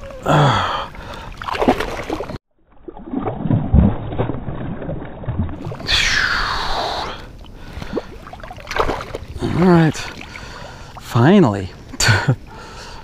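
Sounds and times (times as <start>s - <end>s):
fish thrashing in water: 1.3s - 9.4s.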